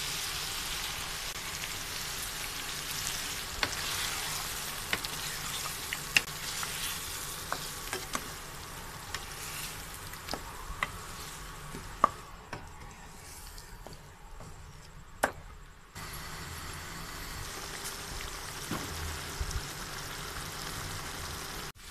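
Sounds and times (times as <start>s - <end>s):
meat sizzling in a frying pan: 0.0s - 11.9s, 16.0s - 21.9s
spatula stirring in a pan: 0.5s - 15.0s.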